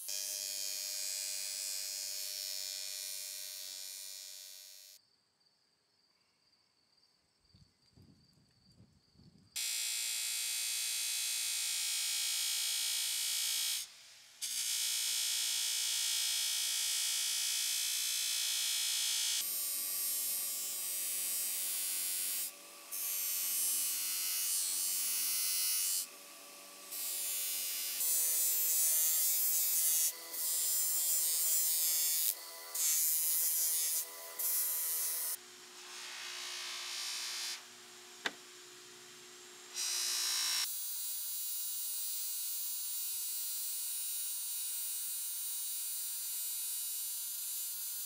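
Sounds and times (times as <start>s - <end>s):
bench grinder motor whine: 18.4s - 40.7s.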